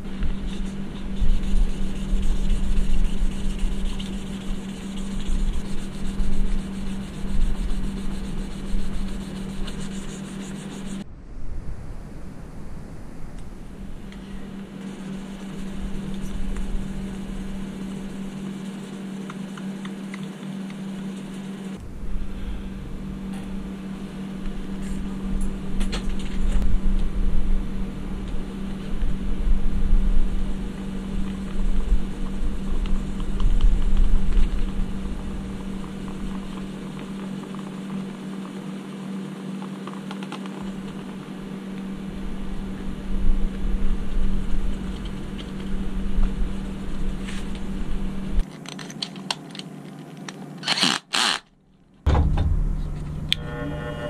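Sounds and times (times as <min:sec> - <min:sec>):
steady low hum: 0:00.0 - 0:54.0
sandpaper rubbing metal: 0:00.1 - 0:11.0, 0:14.8 - 0:19.8.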